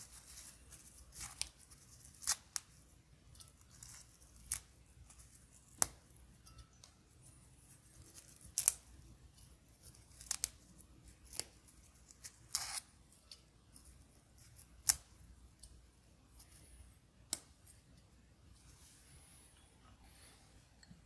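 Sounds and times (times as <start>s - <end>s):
mint leaves tearing by hand: 0.0s - 2.7s, 8.0s - 8.9s, 9.8s - 12.8s.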